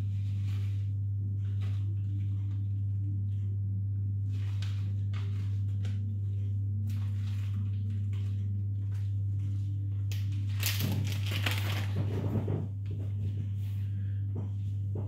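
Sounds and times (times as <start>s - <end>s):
steady low hum: 0.0s - 15.0s
plastic bag crinkling: 10.2s - 12.2s.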